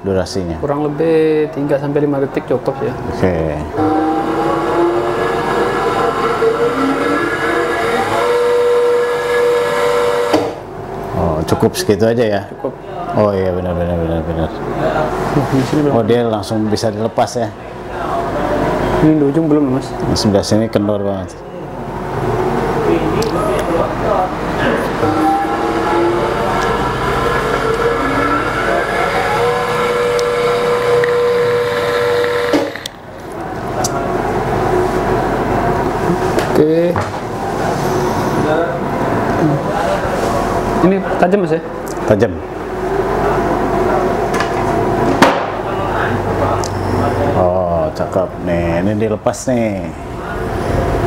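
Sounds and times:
coil-winding machine motor whine: 3.7s - 10.7s, 22.2s - 41.0s.

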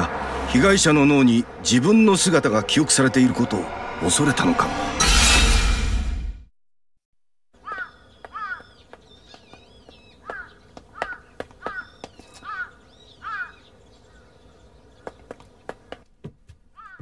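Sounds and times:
crow cawing: 7.6s - 8.8s, 10.1s - 14.2s, 16.8s - 17.0s
faint bird warbling: 10.1s - 14.3s.

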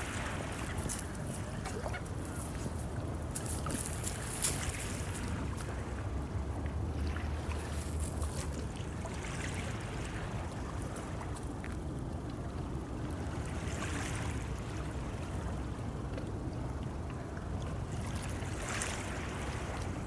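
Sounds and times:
waves lapping on pebbles: 0.0s - 11.8s, 17.8s - 20.0s.

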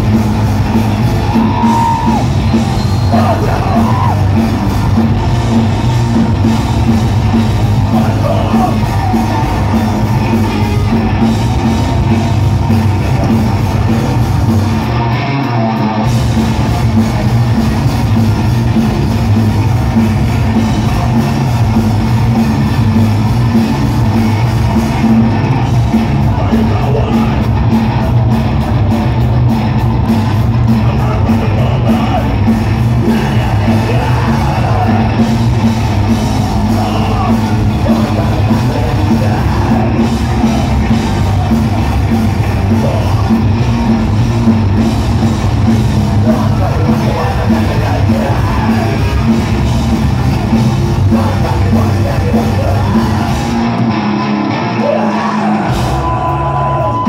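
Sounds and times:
punk band playing live: 0.0s - 57.0s
shouted vocals: 0.8s - 16.1s, 23.6s - 28.3s, 30.7s - 44.2s, 45.9s - 57.0s.

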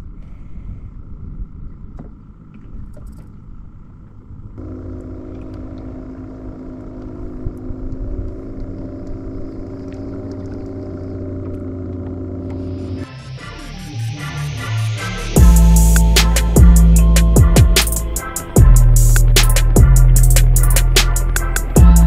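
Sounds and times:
low rumble: 0.0s - 22.0s
electric motor humming: 4.6s - 22.0s.

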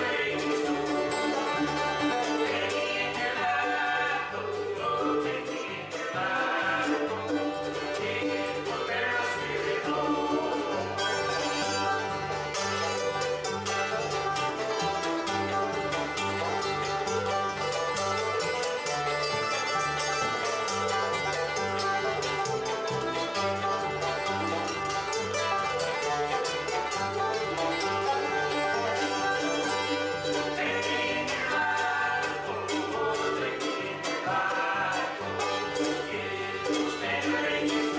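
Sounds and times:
upright bass low notes: 0.0s - 37.7s
acoustic guitar: 0.0s - 37.9s
banjo picking: 0.0s - 37.9s
bluegrass band playing live: 0.0s - 37.9s
fiddle: 0.0s - 37.9s
mandolin: 0.0s - 37.9s.

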